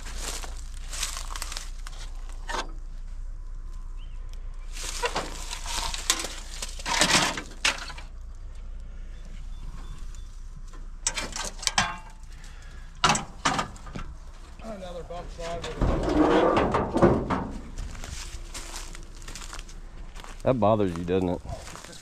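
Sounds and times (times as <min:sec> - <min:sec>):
footsteps crunching through undergrowth: 0:00.0 - 0:03.9, 0:04.7 - 0:07.6, 0:17.2 - 0:22.0.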